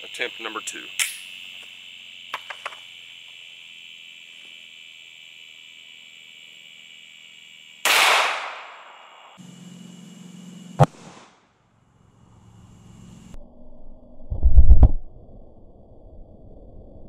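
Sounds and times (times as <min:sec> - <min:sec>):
insects buzzing: 0:00.0 - 0:13.4
pistol shot: 0:07.8 - 0:09.3.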